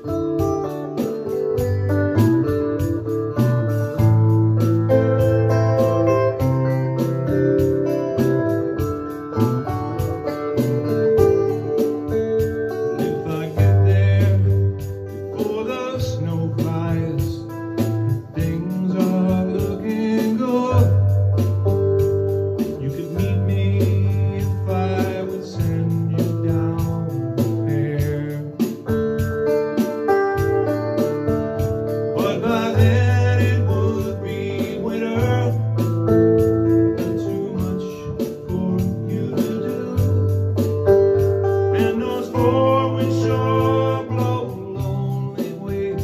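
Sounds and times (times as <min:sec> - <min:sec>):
folk song on electric guitar: 0:00.0 - 0:46.0
organ-like keyboard chords: 0:00.0 - 0:46.0
man singing: 0:11.2 - 0:21.5, 0:22.6 - 0:29.4, 0:31.9 - 0:40.4, 0:41.6 - 0:46.0.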